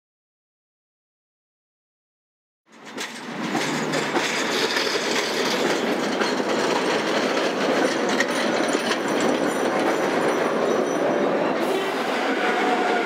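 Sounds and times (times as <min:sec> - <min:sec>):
wheels clicking over rail joints: 0:02.7 - 0:11.1
tram wheels rumbling on rails: 0:02.7 - 0:13.0.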